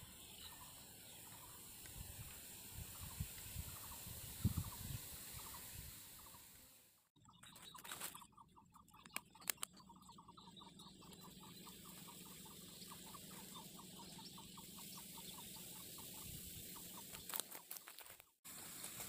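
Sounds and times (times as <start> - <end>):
small animal chirping: 7.2 - 18.2
sharp clicks: 8.9 - 9.9.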